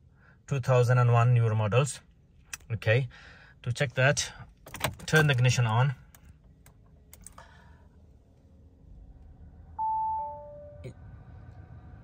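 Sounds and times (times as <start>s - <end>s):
two-tone warning chime: 9.8s - 10.9s.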